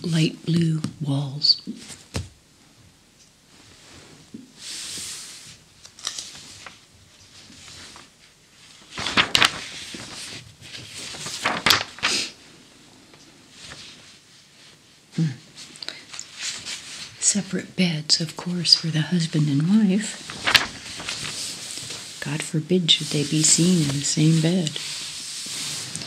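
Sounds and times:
magazine pages rustling: 4.8s - 12.4s, 15.6s - 17.2s, 19.8s - 26.0s
paper brushing: 8.8s - 12.3s, 20.1s - 22.2s, 22.9s - 26.0s.

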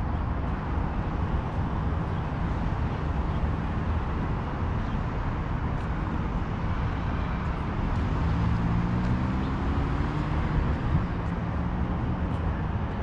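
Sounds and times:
road traffic rumble: 0.0s - 13.0s
vehicle engine speeding past: 8.0s - 11.9s.

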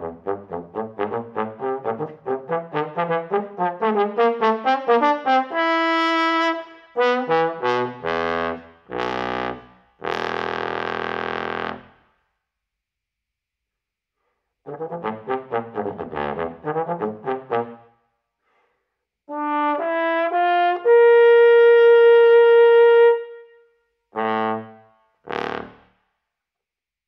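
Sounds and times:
bass trombone playing: 0.0s - 12.0s, 14.7s - 17.8s, 19.3s - 23.2s, 24.2s - 25.8s.

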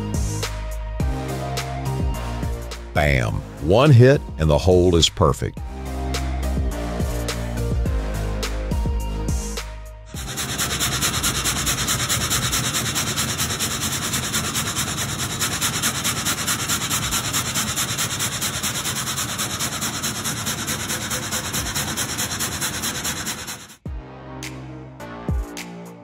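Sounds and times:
frame saw cutting wood: 10.1s - 23.8s.

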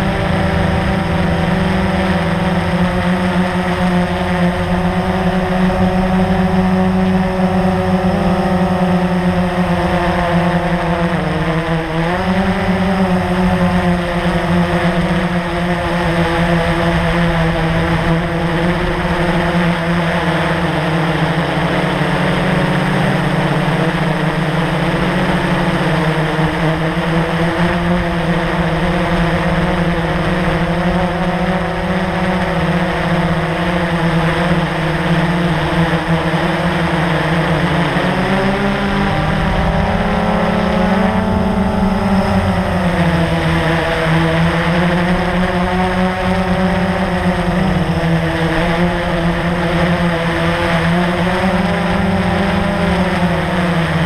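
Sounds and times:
quadcopter motors and propellers: 0.0s - 54.0s.

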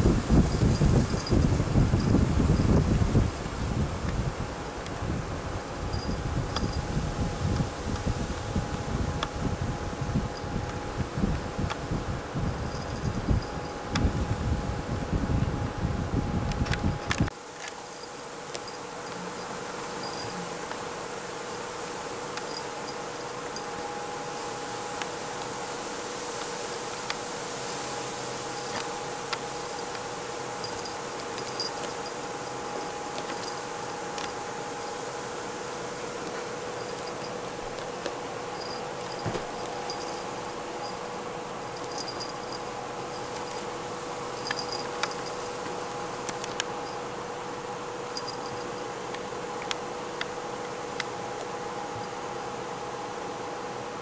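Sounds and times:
faint steady hum: 0.0s - 54.0s
room tone hiss: 0.0s - 54.0s
small bell jingling: 5.9s - 6.9s, 12.5s - 13.8s, 18.0s - 20.4s, 30.6s - 34.4s, 36.8s - 37.4s, 38.5s - 41.1s, 41.7s - 45.6s, 48.1s - 48.9s.

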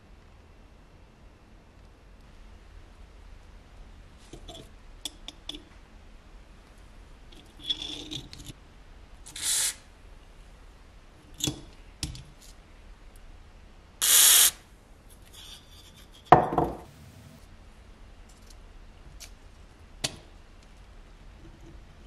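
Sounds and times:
aerosol spray hissing: 9.4s - 9.8s, 14.0s - 14.6s.

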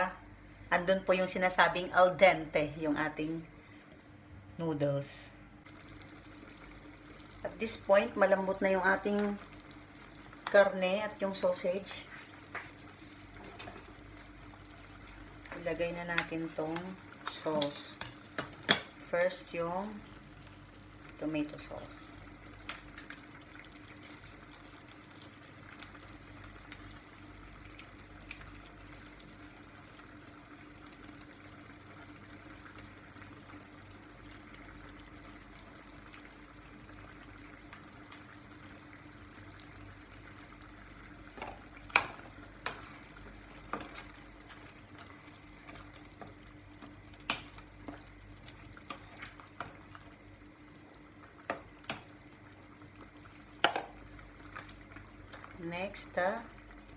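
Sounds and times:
sauce sizzling in a frying pan: 5.6s - 56.9s
wooden spoon knocking against pan: 53.6s - 53.9s.

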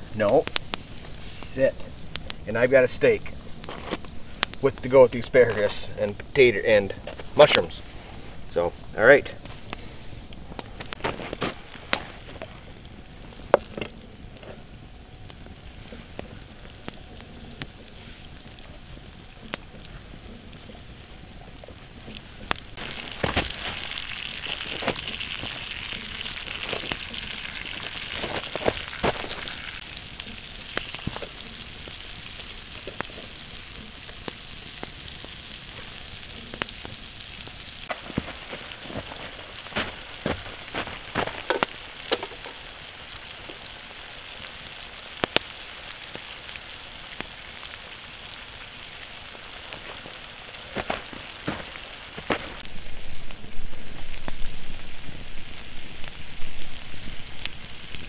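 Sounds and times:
campfire pops and crackles: 0.0s - 7.8s, 8.4s - 58.0s
food sizzling in a pan: 11.6s - 58.0s.

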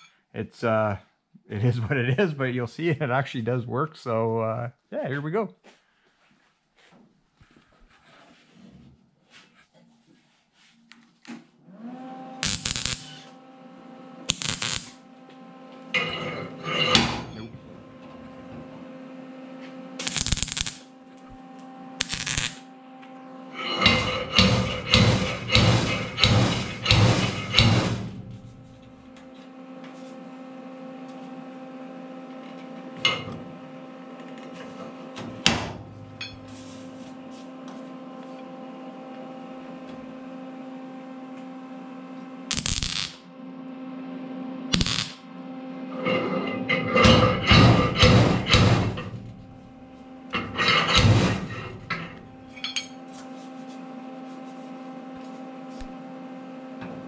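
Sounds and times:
steady hum: 23.5s - 29.3s, 41.9s - 57.0s
slide hammer hitting sheet metal: 23.6s - 28.5s, 46.9s - 49.6s, 50.4s - 52.9s.

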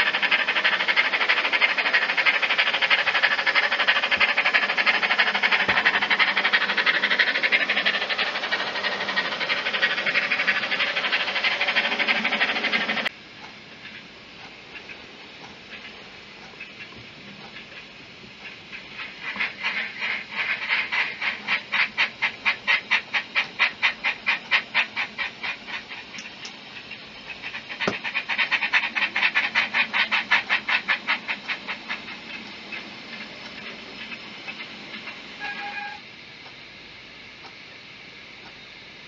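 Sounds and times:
steam engine chuffs from speaker: 0.0s - 13.1s, 18.4s - 36.0s
short tone: 35.4s - 36.0s.

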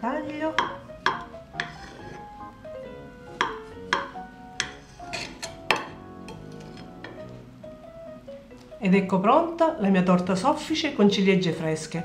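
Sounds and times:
soft background music: 0.0s - 12.0s
knife tapping against plate: 0.6s - 1.8s, 3.4s - 7.2s.

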